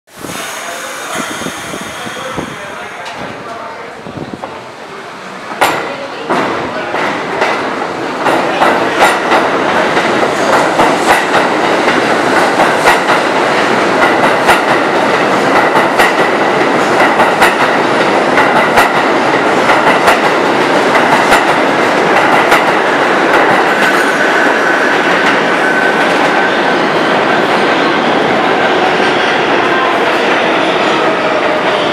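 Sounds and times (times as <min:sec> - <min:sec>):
high wheel squeal: 0:00.2 - 0:03.0
train wheels clacking on rails: 0:05.5 - 0:31.9.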